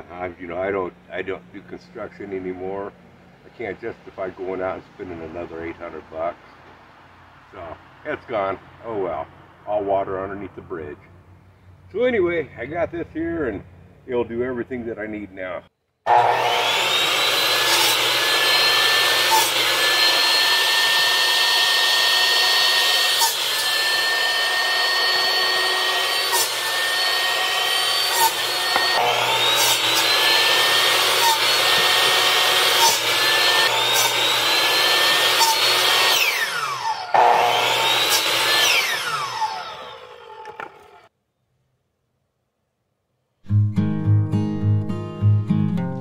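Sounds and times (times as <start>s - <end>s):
chop saw cutting wood: 16.1s - 41.1s
knock of saw cut: 28.1s - 34.2s.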